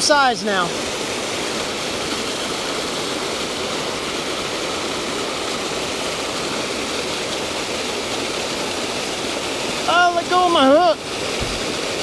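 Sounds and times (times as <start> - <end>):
water rushing into a pool: 0.0 - 12.0.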